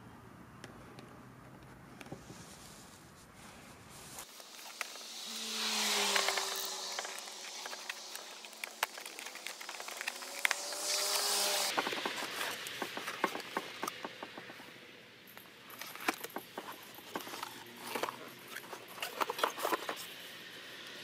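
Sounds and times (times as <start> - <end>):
cardboard box being unpacked: 5.9 - 14.4.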